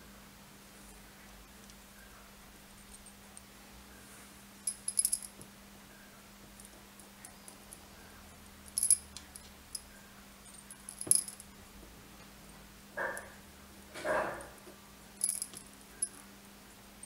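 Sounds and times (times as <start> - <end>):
small brass parts clinking: 4.6 - 5.4, 8.7 - 9.9, 10.5 - 11.5, 15.2 - 16.2.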